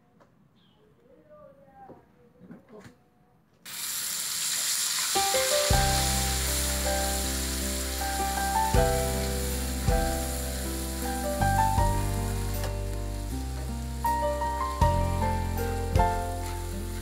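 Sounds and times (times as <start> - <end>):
paste sizzling in hot oil: 3.7 - 17.0
melodic music with deep bass: 5.7 - 17.0.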